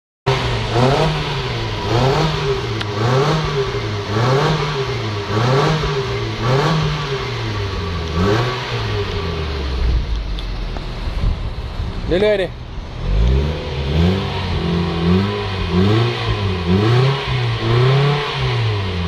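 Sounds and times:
car engine revving in blips: 0.3s - 11.7s, 12.8s - 19.0s.

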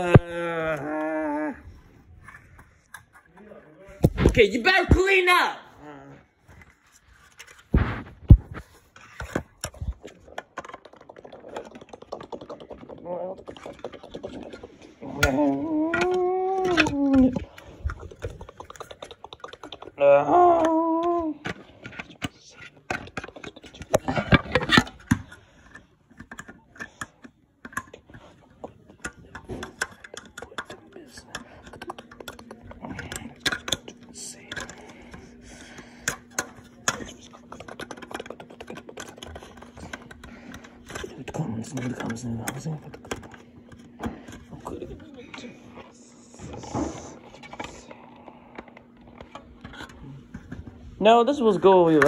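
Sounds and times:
hard objects clicking and tapping: 7.4s - 45.5s.

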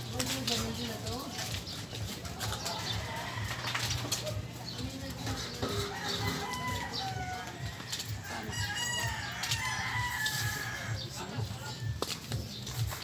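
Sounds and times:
chickens clucking: 1.8s - 11.0s
rooster crowing: 5.7s - 11.1s.

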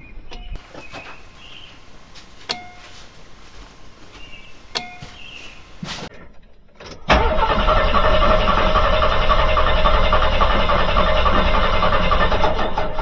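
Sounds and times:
starter motor cranking engine: 6.8s - 13.0s.

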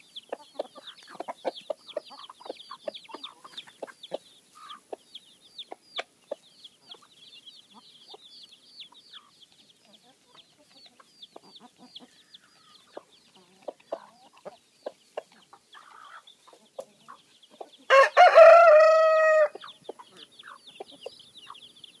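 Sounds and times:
hens clucking: 0.0s - 21.8s
chicks peeping: 0.0s - 22.0s
rooster crowing: 17.9s - 19.6s.

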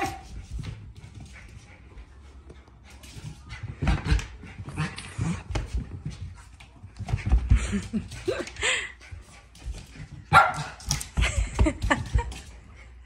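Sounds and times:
dog paws scrabbling on floor: 0.0s - 13.0s.

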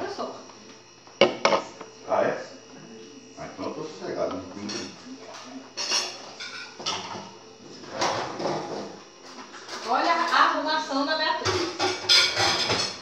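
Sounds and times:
dishes and cutlery clinking: 4.6s - 10.4s, 11.4s - 13.0s.

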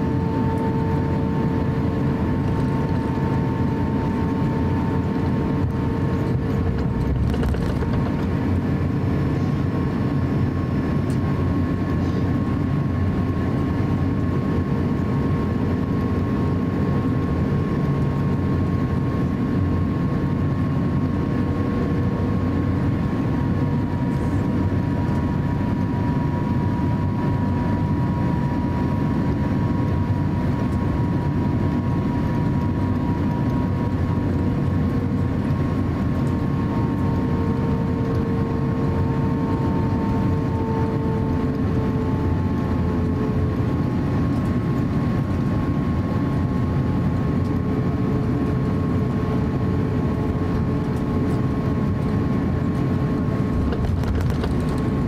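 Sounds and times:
thin steady whine: 0.0s - 13.2s, 19.9s - 55.0s
jet engine low rumble: 0.0s - 55.0s.

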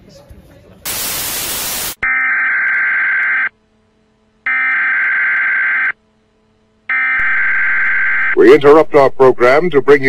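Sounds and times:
tv static: 0.8s - 3.6s, 6.9s - 10.0s
emergency alert tone: 4.5s - 6.0s, 6.9s - 8.5s.

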